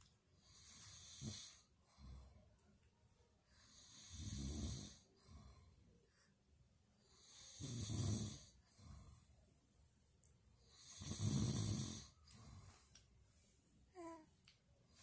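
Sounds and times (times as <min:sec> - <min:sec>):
man snoring: 0:00.5 - 0:01.6, 0:03.7 - 0:05.0, 0:07.1 - 0:08.5, 0:10.7 - 0:12.1.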